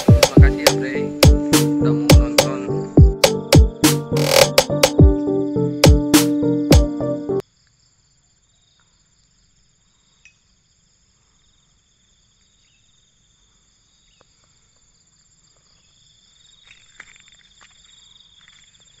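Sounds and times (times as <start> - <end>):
high-pitched insect chorus: 7.4 - 19.0.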